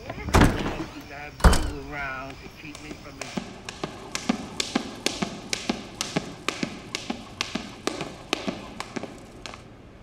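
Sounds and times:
jump rope taps: 0:02.7 - 0:09.6.

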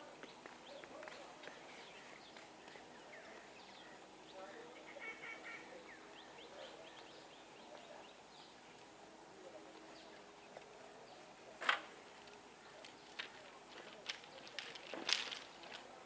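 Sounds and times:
small birds chirping: 0:00.2 - 0:09.0.

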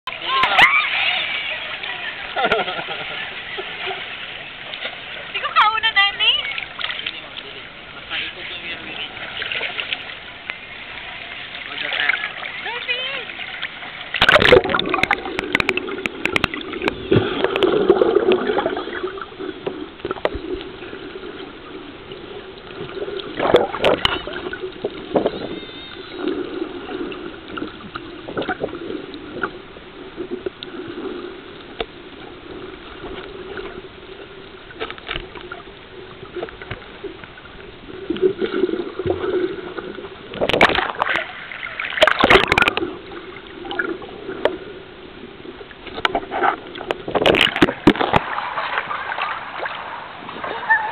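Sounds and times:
muffled underwater sloshing: 0:00.1 - 0:50.9
splashes or knocks: 0:14.1 - 0:18.8, 0:22.8 - 0:25.6, 0:40.4 - 0:43.0, 0:45.8 - 0:49.6.

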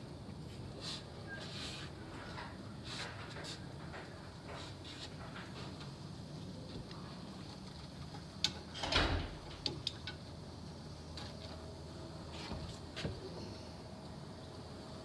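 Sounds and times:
light clicks and knocks: 0:06.8 - 0:10.3.

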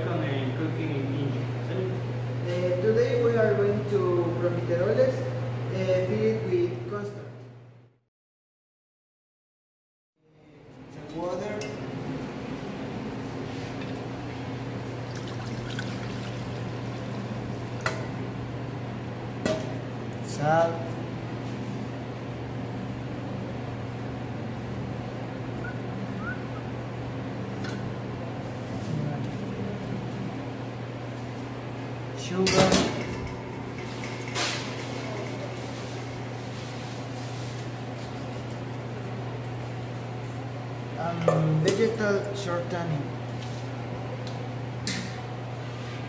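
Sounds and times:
kitchen equipment hum: 0:10.3 - 0:46.0
water pouring into saucepan: 0:15.0 - 0:17.2.

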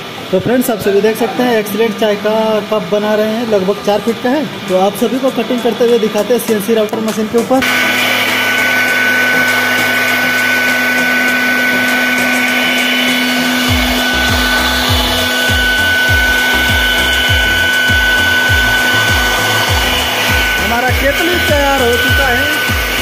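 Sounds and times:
router spindle whining: 0:02.0 - 0:23.0
music beat with low thuds: 0:12.2 - 0:23.0.

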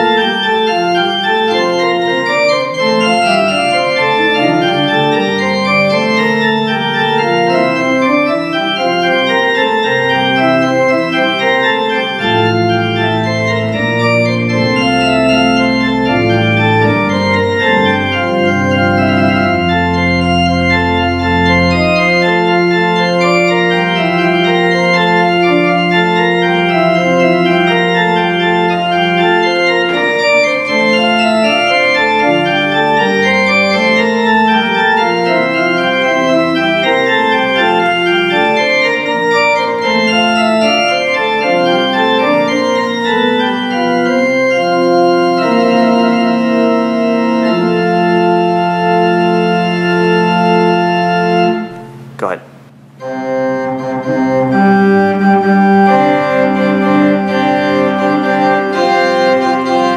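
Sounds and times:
church organ playing: 0:00.0 - 0:59.9.

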